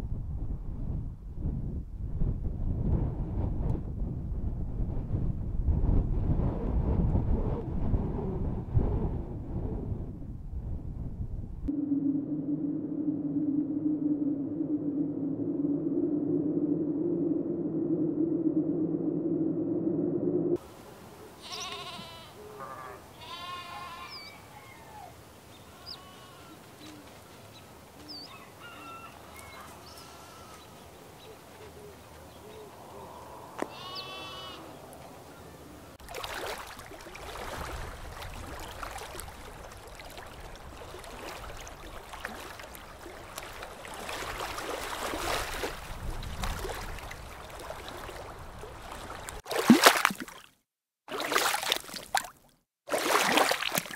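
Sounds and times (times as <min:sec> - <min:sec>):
rushing wind gusts: 0:00.0 - 0:20.8, 0:36.0 - 0:49.4
animal bleating: 0:21.4 - 0:24.4, 0:25.7 - 0:26.7, 0:29.6 - 0:30.7, 0:33.6 - 0:34.8.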